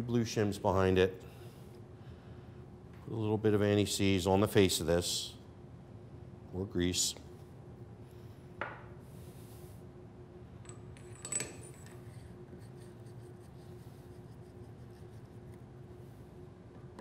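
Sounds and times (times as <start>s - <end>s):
steady low hum: 0.0s - 17.0s
metallic clink and ring: 10.6s - 12.0s.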